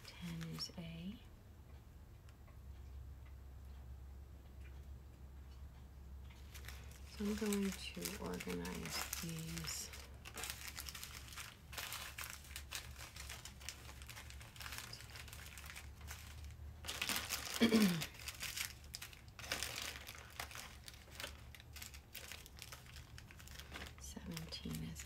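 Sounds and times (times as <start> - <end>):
plastic bags crinkling: 0.0 - 1.1, 6.4 - 25.0
beads rustling in bags: 6.4 - 25.0.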